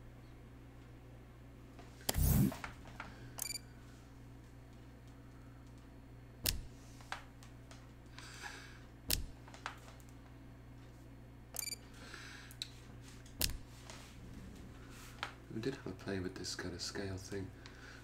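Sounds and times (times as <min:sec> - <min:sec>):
low electrical hum: 0:00.0 - 0:18.0
controller clicks: 0:09.1 - 0:10.1.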